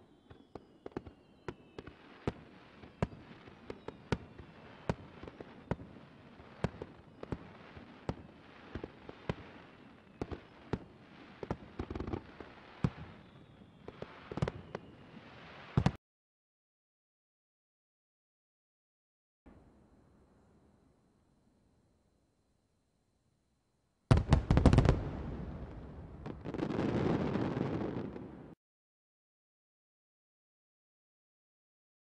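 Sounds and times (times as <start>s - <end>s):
faint falling whistles: 0.0s - 5.8s, 9.3s - 10.8s, 12.7s - 15.9s
fireworks crackling: 0.0s - 16.0s, 24.1s - 28.6s.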